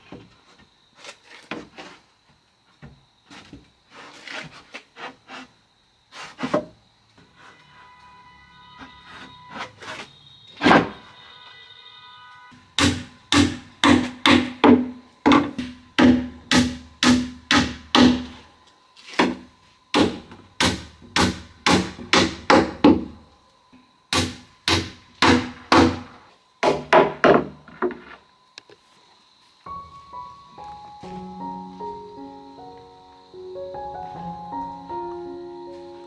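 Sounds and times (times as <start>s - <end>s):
hammer striking wood: 12.8s - 18.4s, 19.2s - 23.2s, 24.1s - 27.6s.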